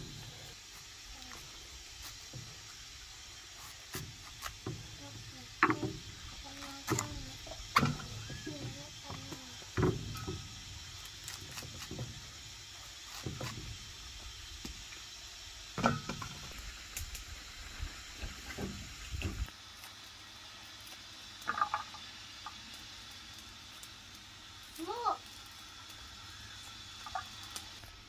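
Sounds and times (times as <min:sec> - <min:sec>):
steady high hiss: 0:00.0 - 0:28.0.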